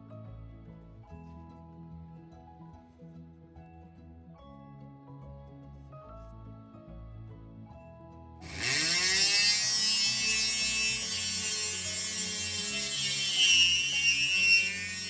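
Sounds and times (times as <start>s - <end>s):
quiet background music: 0.0s - 15.0s
rotary tool whining: 8.4s - 15.0s.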